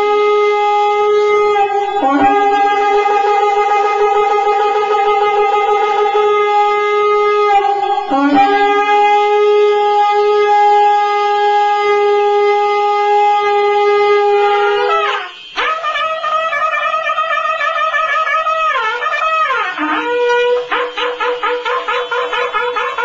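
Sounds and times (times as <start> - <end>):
horn held on steady note: 0.0 - 23.0.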